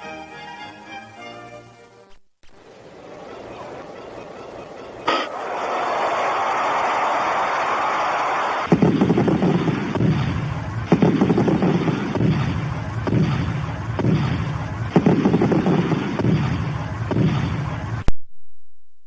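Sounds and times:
crackling explosion-like rumble: 5.1 - 18.1.

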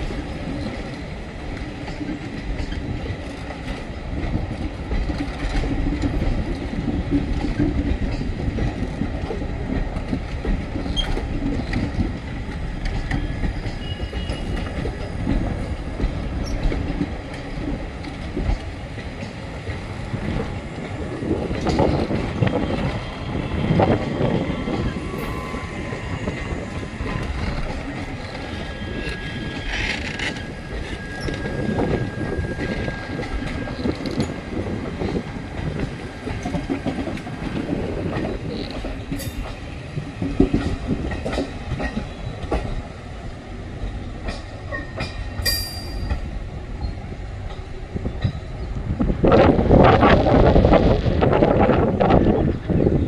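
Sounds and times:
train wheels clattering over rail joints: 0.0 - 25.2, 25.8 - 43.0, 43.7 - 48.7
train wheel squeal: 10.8 - 11.8, 12.8 - 15.8, 16.4 - 16.8, 23.7 - 34.4, 44.7 - 47.2.

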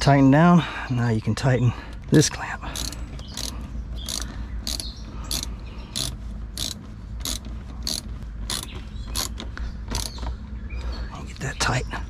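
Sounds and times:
hand ratchet clicking: 2.8 - 10.2.

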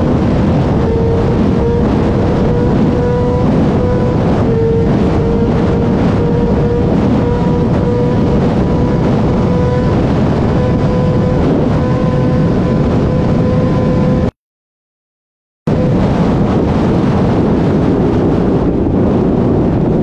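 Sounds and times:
wind buffeting microphone: 0.0 - 14.3, 15.7 - 20.0
motorcycle engine high revs: 0.0 - 14.4.

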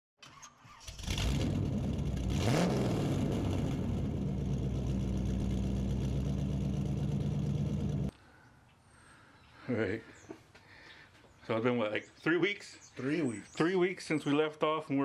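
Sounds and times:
engine revving and idling: 0.9 - 8.1.

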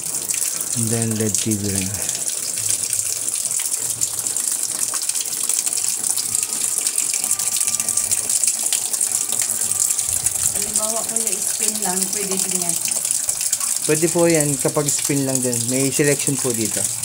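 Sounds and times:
water pouring into washing machine: 0.0 - 17.0.

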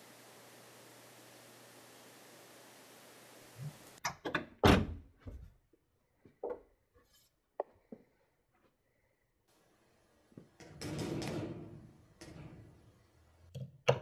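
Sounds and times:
steady hiss: 0.0 - 4.0.

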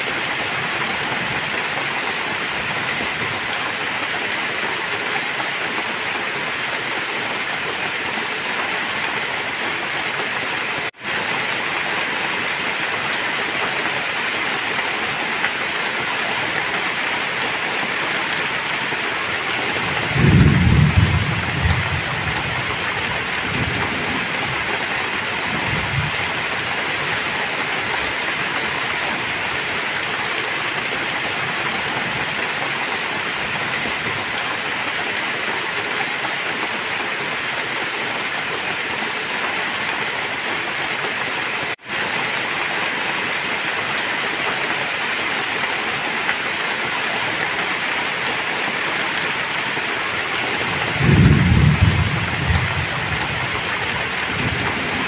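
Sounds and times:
heavy rain: 0.0 - 55.0
thunder rumbling: 19.8 - 24.7, 50.6 - 55.0.

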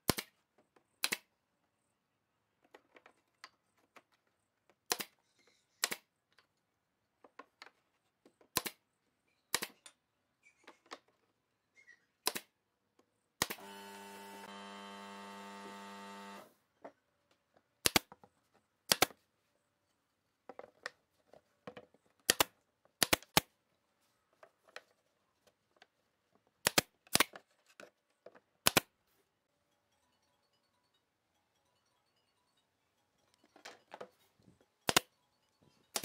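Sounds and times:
nail gun firing into wood: 4.9 - 5.1, 13.4 - 13.7.

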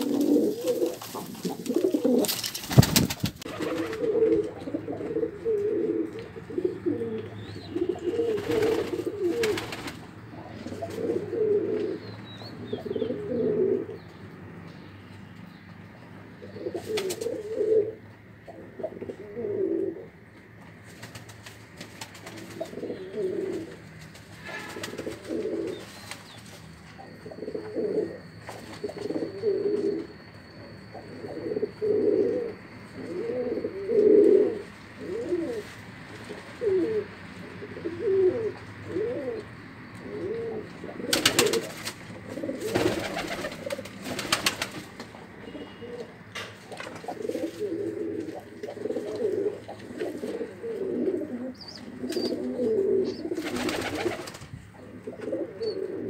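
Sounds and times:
pigeons cooing: 0.0 - 14.1, 16.4 - 20.2, 21.0 - 56.0.

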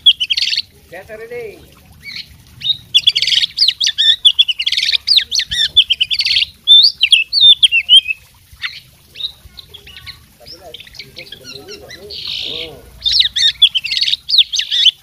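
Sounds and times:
songbird singing loudly: 0.0 - 0.7, 2.0 - 15.0.

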